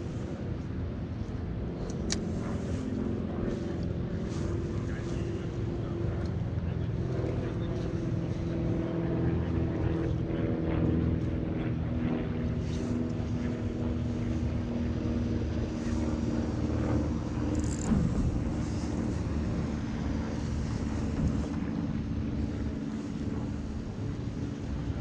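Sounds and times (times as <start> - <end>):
low engine hum: 0.0 - 25.0.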